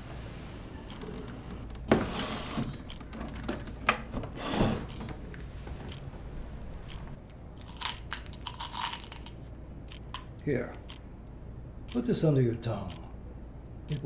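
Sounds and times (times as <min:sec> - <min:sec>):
wooden drawer sliding: 0:01.9 - 0:06.2.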